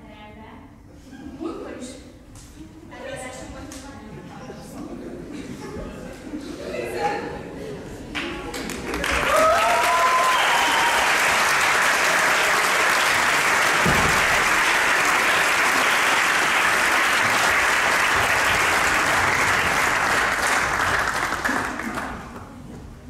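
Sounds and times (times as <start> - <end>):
audience applauding: 8.2 - 22.5
whoops and cheers: 9.1 - 11.5.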